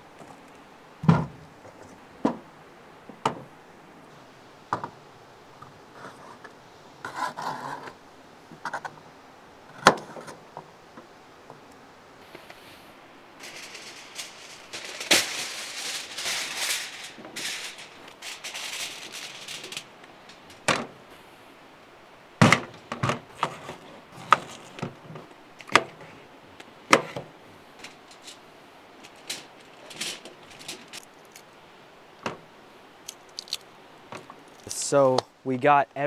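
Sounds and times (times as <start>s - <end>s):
aluminium foil crinkling: 13.4s - 20.7s, 23.6s - 25.0s, 27.8s - 28.4s, 29.0s - 31.5s, 33.1s - 33.6s.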